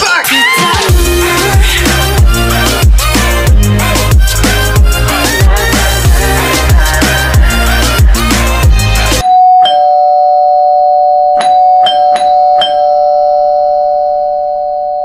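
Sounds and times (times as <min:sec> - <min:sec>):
music: 0:00.0 - 0:09.2
short bell-like dings: 0:09.2 - 0:14.0.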